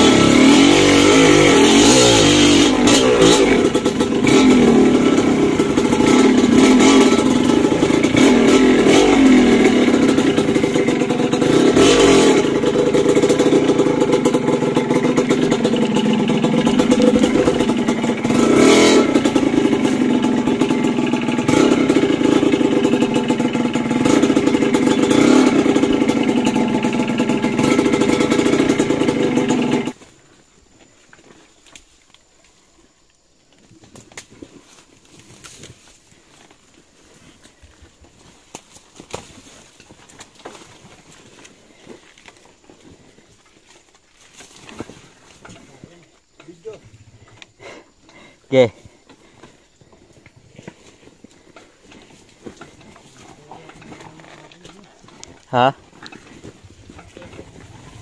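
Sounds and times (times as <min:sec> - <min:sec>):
motorcycle engine revving: 0:00.0 - 0:30.0, 0:44.3 - 0:58.0.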